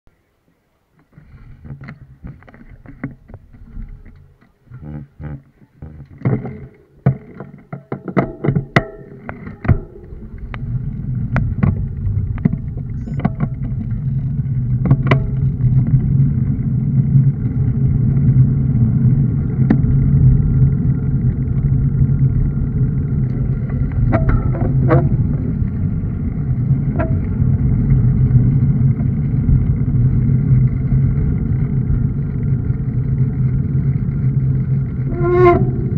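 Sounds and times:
wind and road noise: 0:00.1 - 0:35.9
bike clicks and knocks: 0:01.0 - 0:16.2, 0:22.8 - 0:33.9.

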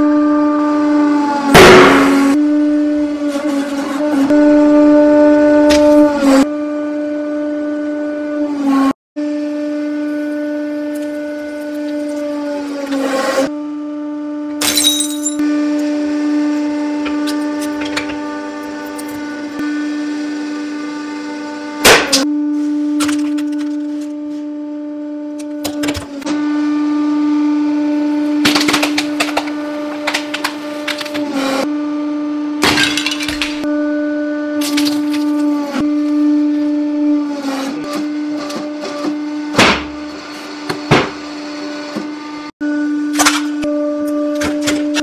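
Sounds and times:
hydraulic pump humming: 0:14.5 - 0:24.5, 0:32.6 - 0:45.0.

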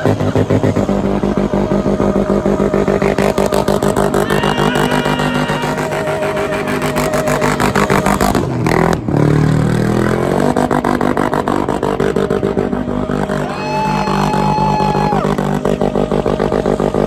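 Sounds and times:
engine revving high: 0:00.0 - 0:17.0
tyres screeching: 0:04.1 - 0:07.5.

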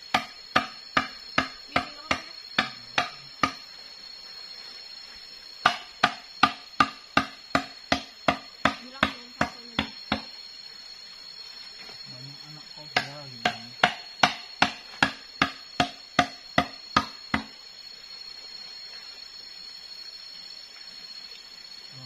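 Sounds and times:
blade chopping on wooden block: 0:00.1 - 0:03.6, 0:05.6 - 0:10.3, 0:13.0 - 0:17.5.

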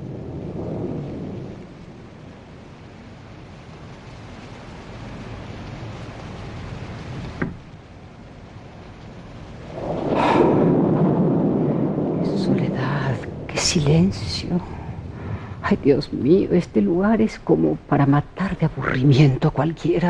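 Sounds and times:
steady rain: 0:00.0 - 0:20.0
thunder rumbling: 0:00.0 - 0:20.0
wind: 0:00.0 - 0:20.0
sharp thunder crack: 0:09.6 - 0:16.8.

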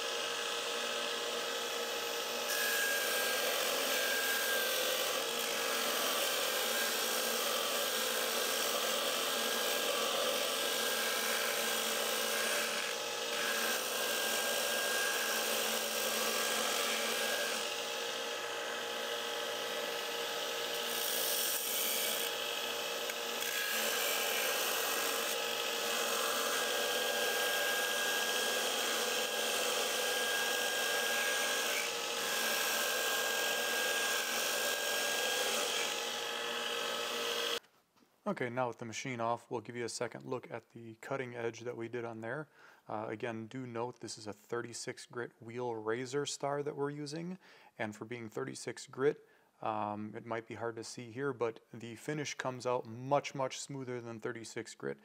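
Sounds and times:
belt grinder grinding steel: 0:00.0 - 0:37.6.

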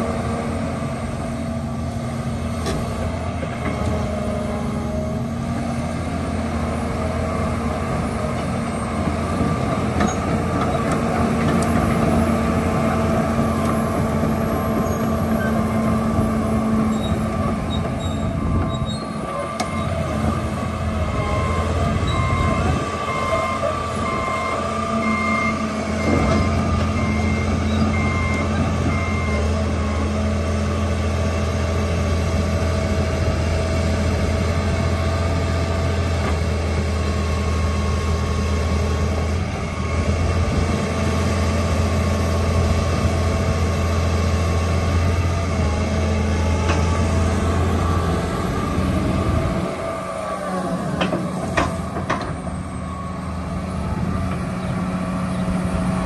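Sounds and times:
diesel engine running: 0:00.0 - 0:56.0
reversing alarm beeping: 0:21.0 - 0:30.1.

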